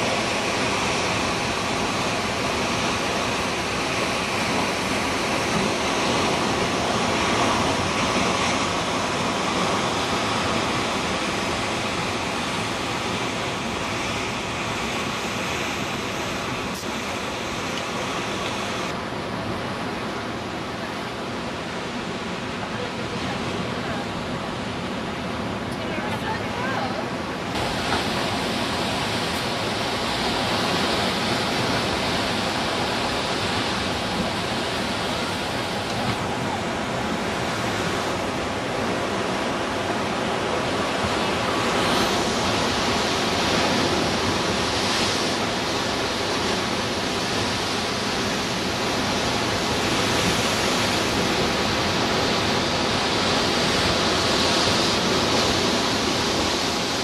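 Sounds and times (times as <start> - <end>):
ocean surf on rocks: 0.0 - 57.0.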